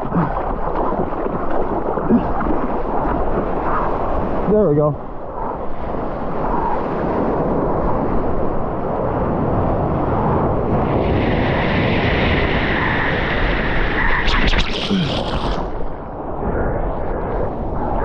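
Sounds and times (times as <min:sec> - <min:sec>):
ocean water splashing: 0:00.0 - 0:16.4
wind rumble on microphone: 0:00.0 - 0:18.0.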